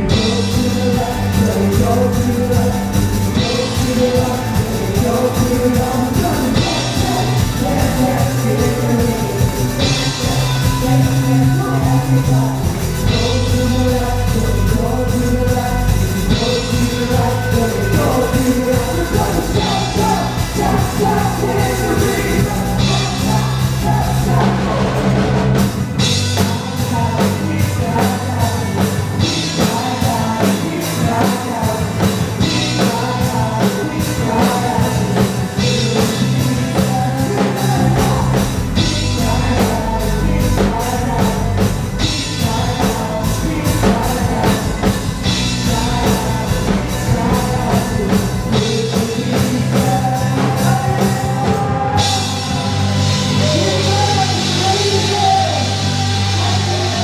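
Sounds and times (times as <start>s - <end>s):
live rock band with singer: 0.0s - 57.0s.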